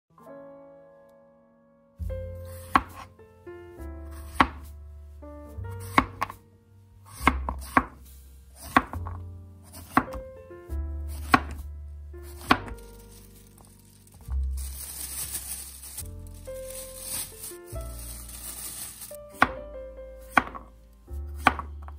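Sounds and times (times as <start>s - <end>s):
knife chopping on cutting board: 2.6s - 3.1s, 4.2s - 4.7s, 5.8s - 6.4s, 7.1s - 8.0s, 8.6s - 10.2s, 11.1s - 11.6s, 12.4s - 12.7s, 20.3s - 20.6s, 21.4s - 21.7s.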